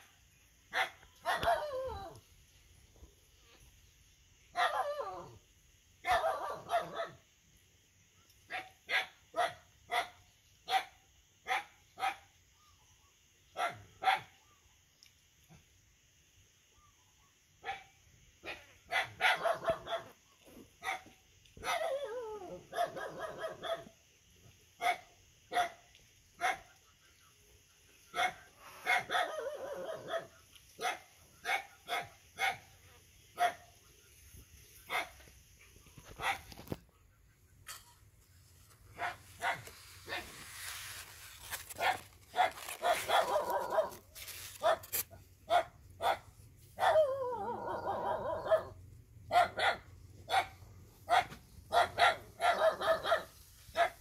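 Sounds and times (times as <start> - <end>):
puppy barking: 0.7 - 2.1, 4.5 - 5.4, 6.0 - 7.2, 8.5 - 12.3, 13.6 - 14.4, 17.6 - 20.2, 20.8 - 23.9, 24.8 - 25.8, 26.4 - 26.7, 28.1 - 32.7, 33.4 - 33.6, 34.9 - 35.2, 36.1 - 36.7, 38.9 - 40.3, 41.4 - 54.0.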